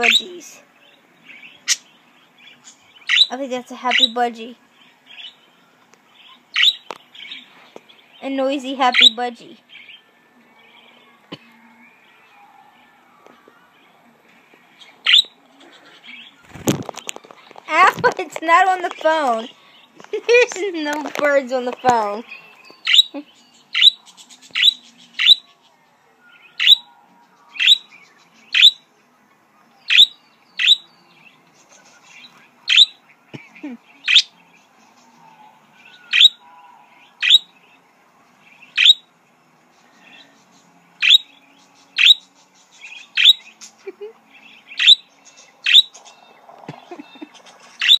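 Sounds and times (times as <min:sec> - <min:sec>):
budgerigar chirping: 0:00.0 - 0:00.3, 0:03.0 - 0:04.2, 0:06.5 - 0:06.8, 0:08.9 - 0:09.2, 0:15.0 - 0:15.4, 0:22.8 - 0:24.0, 0:24.6 - 0:25.4, 0:26.6 - 0:26.9, 0:27.6 - 0:27.9, 0:28.5 - 0:28.8, 0:29.9 - 0:30.9, 0:32.7 - 0:33.0, 0:34.1 - 0:34.3, 0:36.1 - 0:36.4, 0:37.2 - 0:37.5, 0:38.7 - 0:39.1, 0:41.0 - 0:41.4, 0:42.0 - 0:42.3, 0:43.0 - 0:43.5, 0:44.7 - 0:46.0, 0:47.8 - 0:48.0
faint bird chatter: 0:00.0 - 0:48.0.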